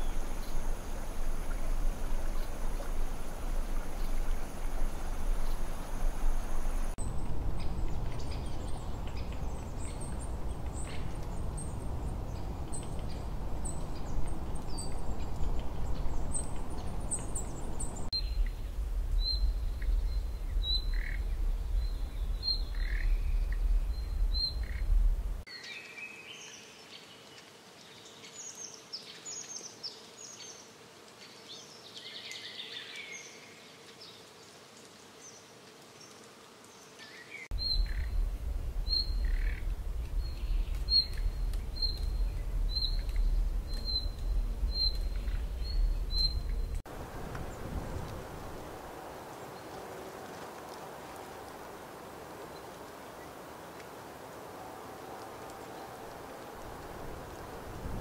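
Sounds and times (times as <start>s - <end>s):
low outdoor rumble: 0.0s - 25.5s, 37.5s - 53.2s
small birds chirping: 0.0s - 34.4s, 35.2s - 47.7s.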